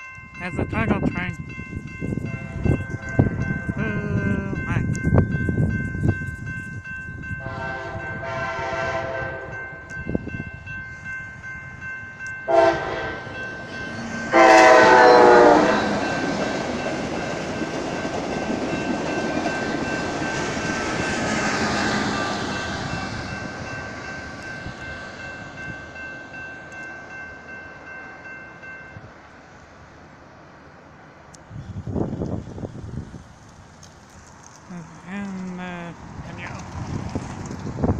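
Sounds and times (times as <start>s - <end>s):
train rumbling past on rails: 0.0s - 37.9s
train horn blasts: 7.4s - 9.8s, 12.5s - 13.5s, 14.1s - 16.1s.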